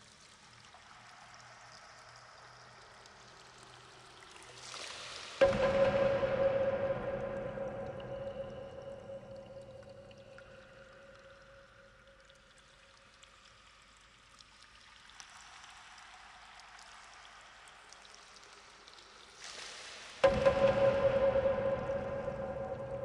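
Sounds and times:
small water drips: 0.0s - 23.0s
trickling water hiss: 0.0s - 23.0s
ambient music drone: 5.4s - 11.4s, 20.2s - 23.0s.

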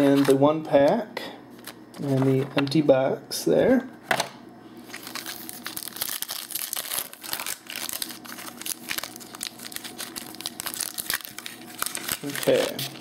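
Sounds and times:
foil wrapper crinkling and tearing: 4.9s - 13.0s.

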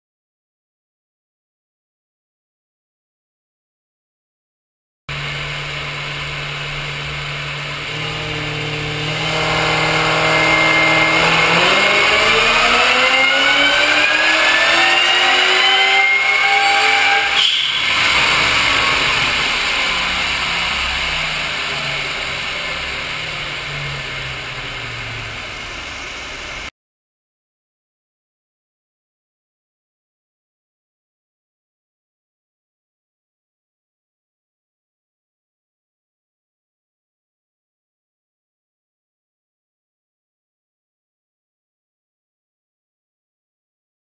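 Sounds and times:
car engine revving: 5.1s - 26.7s
supercharger whine: 5.1s - 26.7s.

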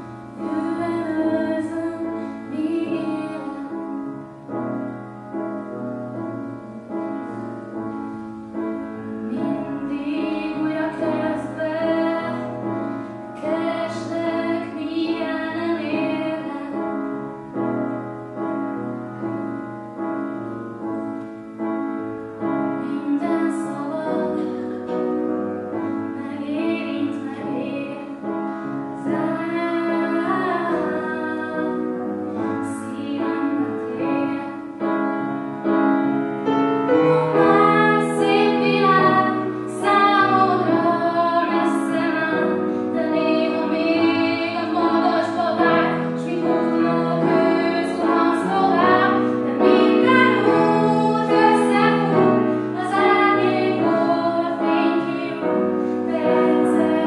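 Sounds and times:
piano accompaniment: 0.0s - 57.0s
woman singing: 0.3s - 4.0s, 9.2s - 12.8s, 13.4s - 17.0s, 22.7s - 25.2s, 26.1s - 28.3s, 29.0s - 35.0s, 37.1s - 57.0s.

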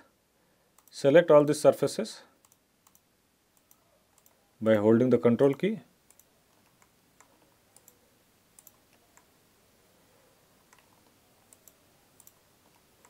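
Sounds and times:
faint computer mouse clicks: 0.8s - 1.0s, 2.4s - 3.0s, 3.6s - 4.4s, 5.5s - 8.0s, 8.6s - 9.3s, 10.6s - 12.9s.

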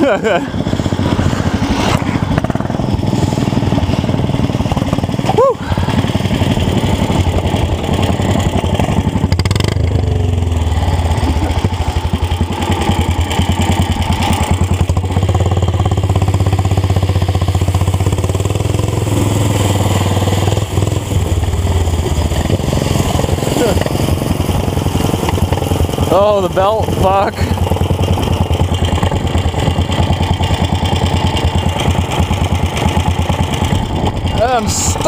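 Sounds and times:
small engine running at high revs: 0.0s - 35.0s.

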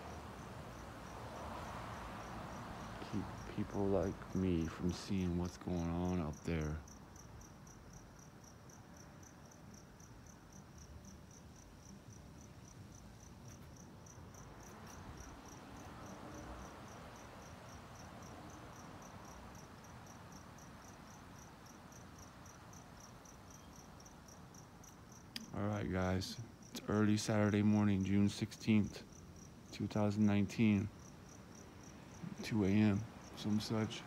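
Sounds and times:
cricket chirping: 0.0s - 34.0s
low rumble of night noise: 0.0s - 34.0s.

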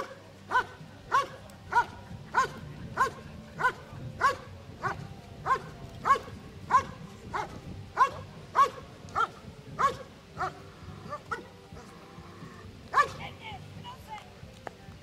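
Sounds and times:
dog barking: 0.5s - 11.9s, 12.9s - 13.2s.

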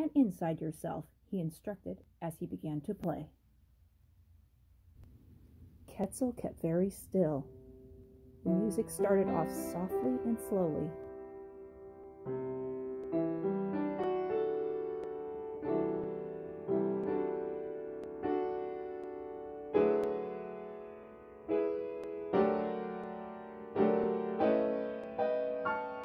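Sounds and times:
piano playing slow chords: 7.5s - 26.0s.

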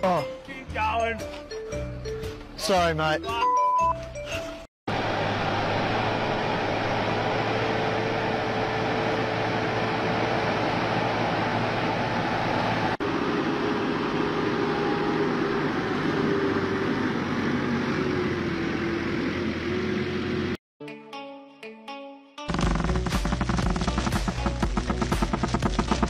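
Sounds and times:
tractor engine droning: 4.9s - 20.6s, 22.5s - 26.0s
paddle wheel churning water: 23.0s - 26.0s.

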